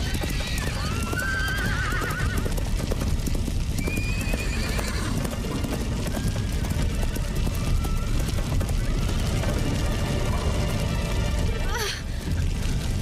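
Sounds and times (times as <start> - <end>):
horse whinny: 0.0 - 2.5, 3.9 - 5.3
horses galloping: 0.0 - 13.0.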